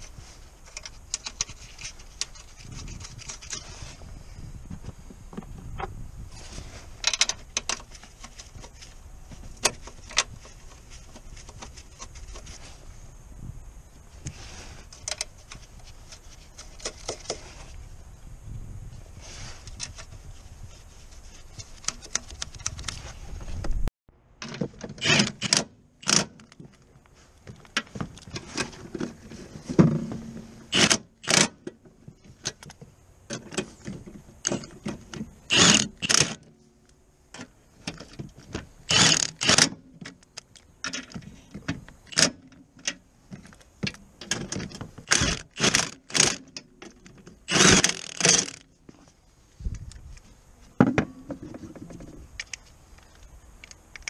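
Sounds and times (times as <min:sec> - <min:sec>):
hand ratchet clicking: 0:35.5 - 0:36.4, 0:38.9 - 0:39.7, 0:47.5 - 0:48.6
tools clicking and scraping on metal: 0:41.9 - 0:48.7.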